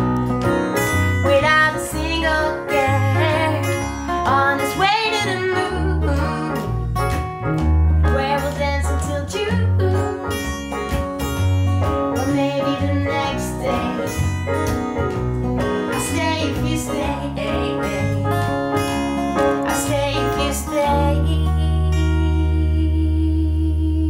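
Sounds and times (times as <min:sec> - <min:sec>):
acoustic guitar: 0:00.0 - 0:24.0
piano: 0:00.0 - 0:24.0
woman singing: 0:01.2 - 0:06.7, 0:08.0 - 0:10.3, 0:12.2 - 0:14.3, 0:15.8 - 0:18.4, 0:19.6 - 0:24.0.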